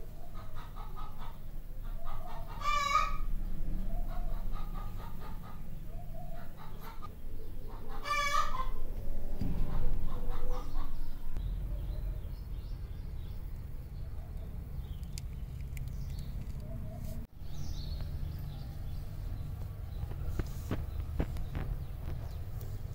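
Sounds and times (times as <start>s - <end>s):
low steady rumble: 0.0s - 22.9s
fowl clucking: 0.3s - 3.3s, 4.0s - 8.8s, 9.7s - 11.0s.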